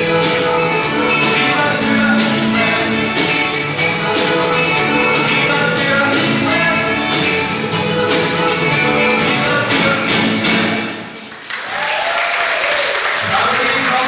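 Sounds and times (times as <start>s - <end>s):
live rock band playing: 0.0s - 11.4s
audience applauding: 11.2s - 14.0s.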